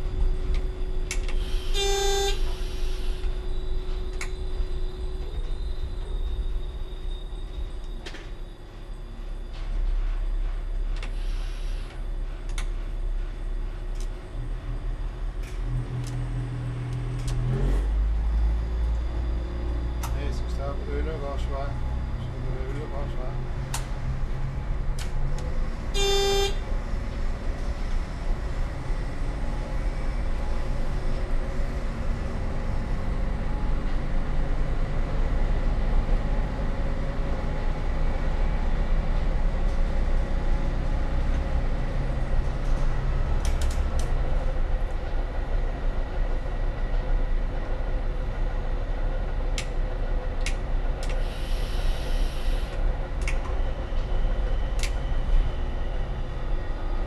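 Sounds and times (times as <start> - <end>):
railcar engine and wheels rumble: 0.0 - 57.0
train horn toot: 1.4 - 3.3, 25.9 - 26.7.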